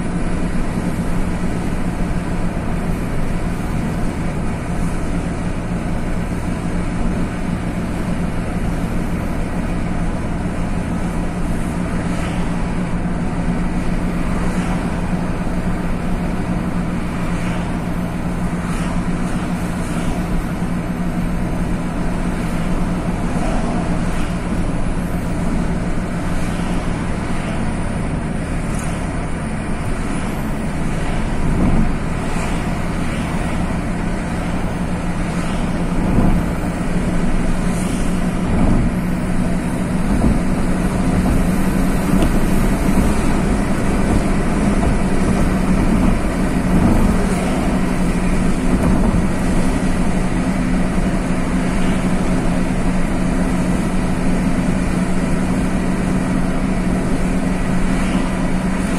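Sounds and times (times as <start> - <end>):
car engine hum: 0.0 - 58.9
tyre and road noise: 0.0 - 58.9
knocks from road bumps: 40.1 - 47.7.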